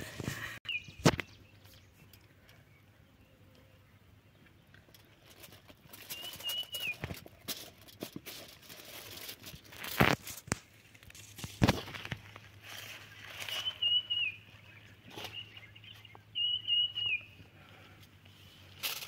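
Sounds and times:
leaf rustling and crinkling: 4.8s - 16.2s, 17.0s - 19.0s
bird whistled call: 6.1s - 7.0s, 13.4s - 14.5s, 15.2s - 17.4s.

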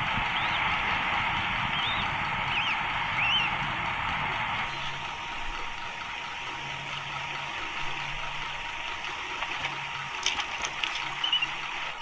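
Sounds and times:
steady rushing hiss: 0.0s - 12.0s
sharp clicks: 9.0s - 12.0s.

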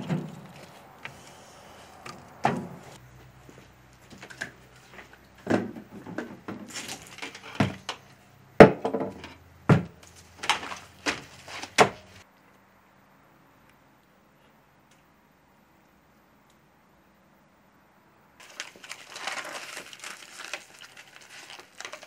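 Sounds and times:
plastic wrap rustling: 18.4s - 22.0s.

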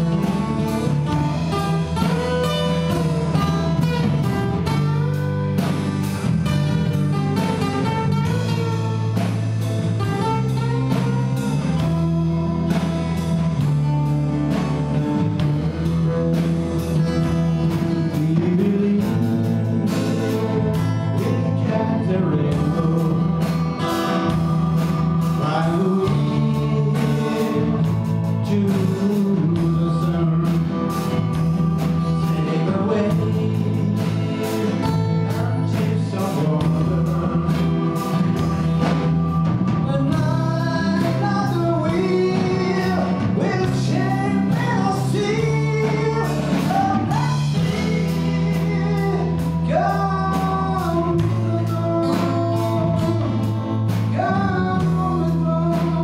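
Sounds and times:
man singing: 0.0s - 14.0s, 14.6s - 56.0s
drum beat: 0.0s - 21.4s
live band playing: 0.0s - 56.0s.

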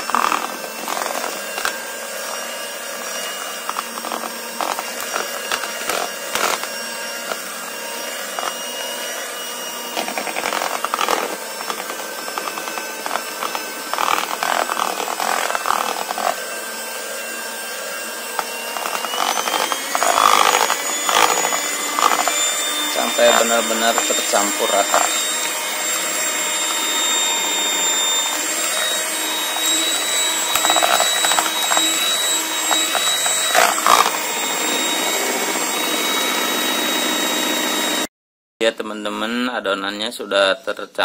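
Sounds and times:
electric hand mixer whine: 0.0s - 38.1s.

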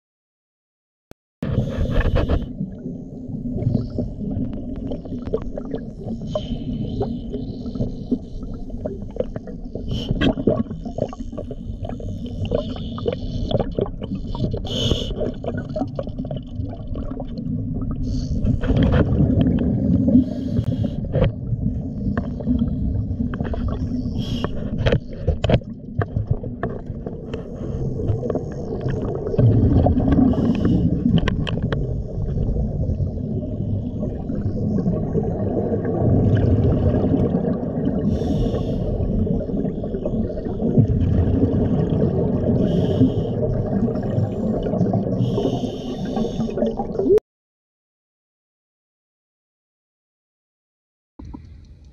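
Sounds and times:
low underwater rumbling wash: 1.4s - 47.2s, 51.2s - 51.9s
water gurgling: 1.4s - 47.2s
sharp clicks and crackles: 30.1s - 31.8s.

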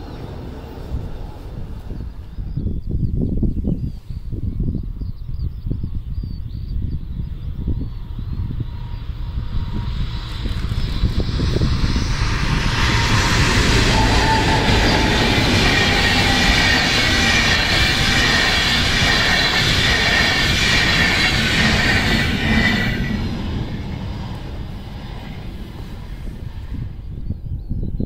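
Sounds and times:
diesel locomotives passing: 0.0s - 3.4s, 7.1s - 28.0s
train wheels rolling on rails: 8.6s - 27.2s.

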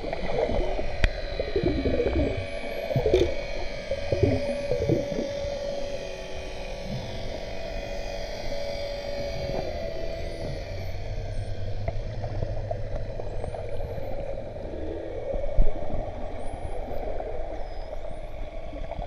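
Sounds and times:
underwater low hum: 0.0s - 19.0s.

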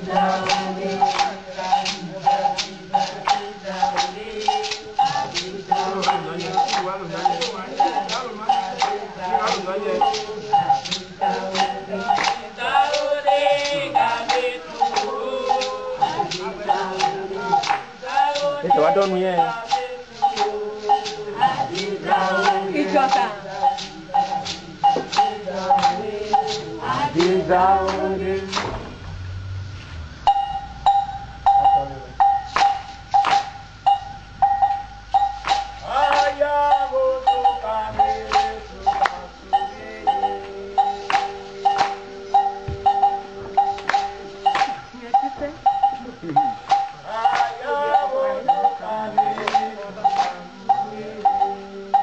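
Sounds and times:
high ringing stroke: 0.0s - 28.3s, 30.2s - 52.0s
drum hits: 0.0s - 29.2s, 30.3s - 47.9s
voices singing: 0.0s - 52.0s
metal bell struck: 30.3s - 35.9s, 36.7s - 47.0s.

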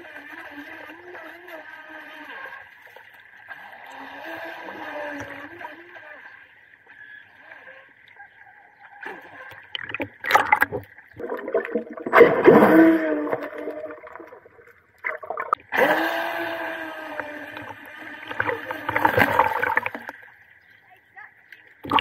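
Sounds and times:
toy boat motor whining: 0.0s - 9.8s, 12.6s - 14.6s, 15.7s - 20.2s
water splashing: 9.1s - 20.8s, 21.4s - 22.0s.

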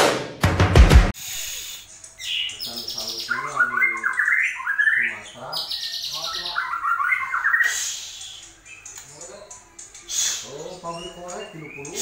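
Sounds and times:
bird singing chirps and whistles: 1.3s - 12.0s.

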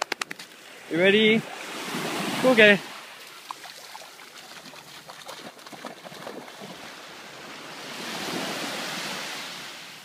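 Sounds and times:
wave washing on sand: 0.5s - 10.0s
dog splashing in water: 3.2s - 6.9s.

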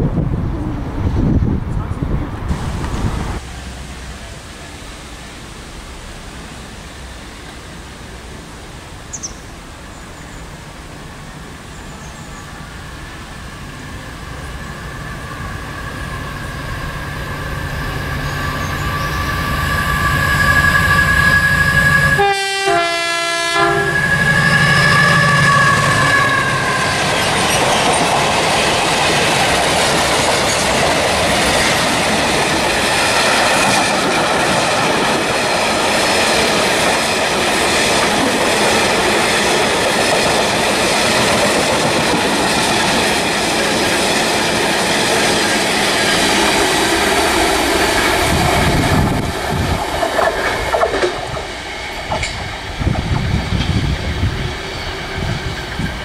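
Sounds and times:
diesel locomotive engine: 0.0s - 56.0s
two-note train horn: 18.2s - 26.9s
wheels clattering over rail joints: 27.0s - 53.9s.

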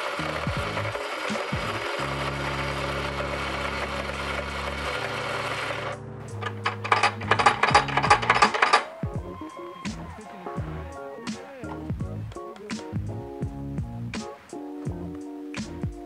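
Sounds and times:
coffee grinder whirring: 0.0s - 8.9s
portafilter clicks and knocks: 6.4s - 8.9s.

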